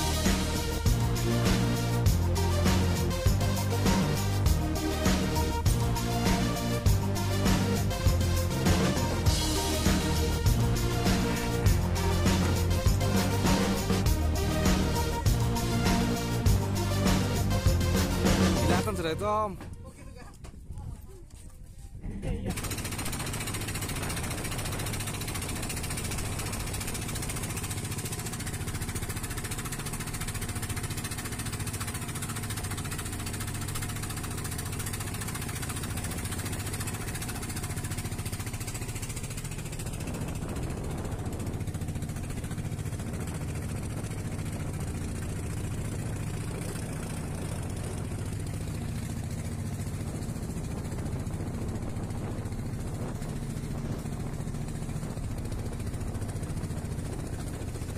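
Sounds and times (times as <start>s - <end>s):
water rushing around hull: 0.0s - 19.6s, 22.5s - 57.9s
boat engine running: 0.0s - 57.9s
wind: 19.0s - 57.9s.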